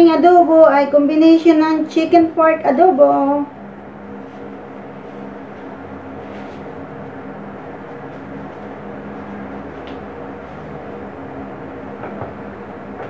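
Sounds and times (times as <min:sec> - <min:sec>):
low mechanical hum with hiss: 0:00.0 - 0:13.0
faint soft rustles: 0:04.1 - 0:10.7.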